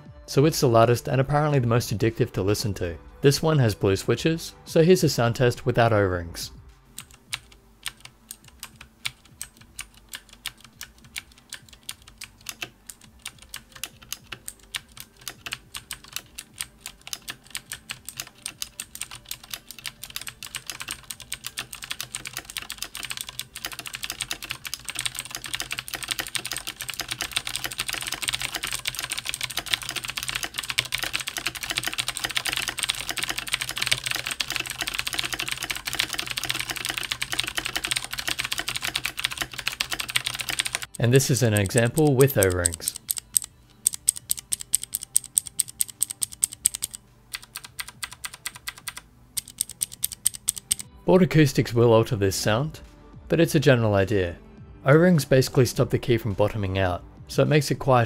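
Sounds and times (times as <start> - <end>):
mechanical keyboard typing: 6.9 - 50.9.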